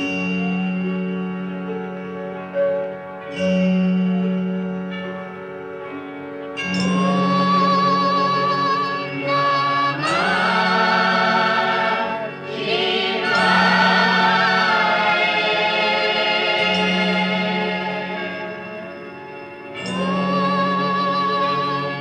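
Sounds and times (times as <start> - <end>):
orchestra playing: 5.9 - 21.9
choir singing held notes: 7.2 - 22.0.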